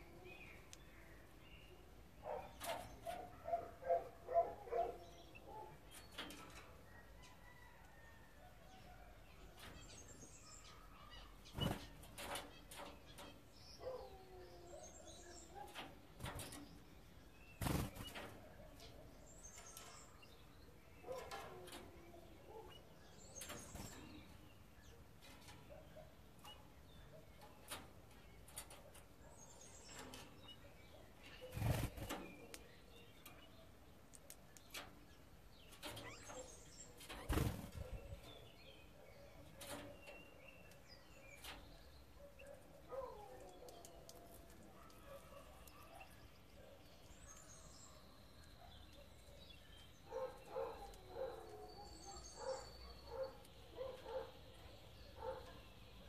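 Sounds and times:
soft bird calls: 0.0 - 56.0
birds flapping on wire mesh: 11.5 - 13.3, 17.6 - 18.4, 31.5 - 32.3, 37.1 - 37.9.

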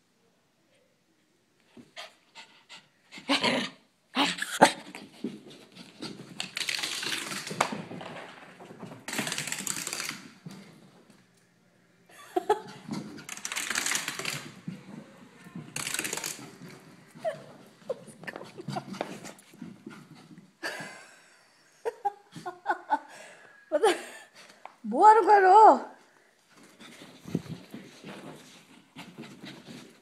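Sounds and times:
dog panting: 1.8 - 3.4, 16.3 - 20.6
paw-falls scuffling on carpet: 16.4 - 20.6, 26.4 - 30.0.

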